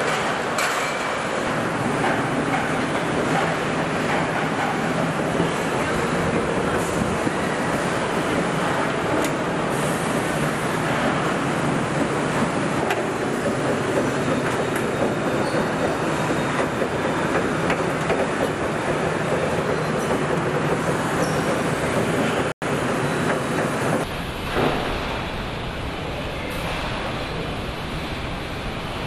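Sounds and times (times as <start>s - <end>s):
assembly line machinery noise: 0.0s - 29.0s.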